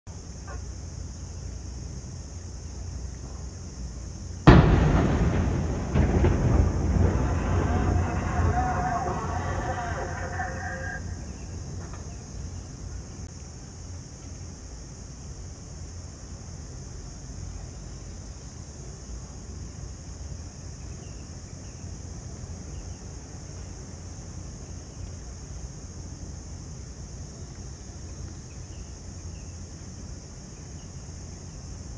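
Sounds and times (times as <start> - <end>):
low steady rumble: 0.1 - 13.3
steady high hiss: 0.1 - 31.9
explosion bangs: 4.4 - 11.3.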